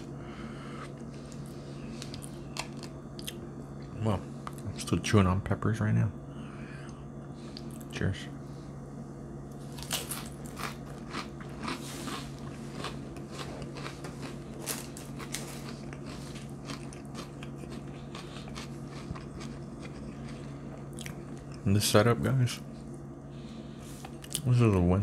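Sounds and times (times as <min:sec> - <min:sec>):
crunchy cracker chewing: 0:09.6 - 0:21.7.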